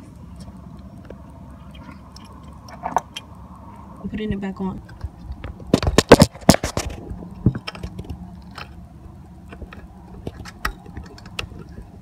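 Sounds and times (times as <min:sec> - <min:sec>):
metal bolts clicking and scraping: 0:06.0 - 0:08.8, 0:09.4 - 0:11.9.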